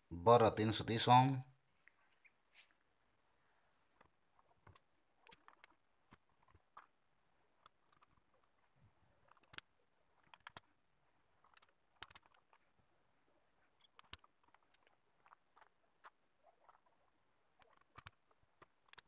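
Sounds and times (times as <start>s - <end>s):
small clicks of wire leads: 7.6s - 10.8s, 11.4s - 12.7s, 17.6s - 19.0s.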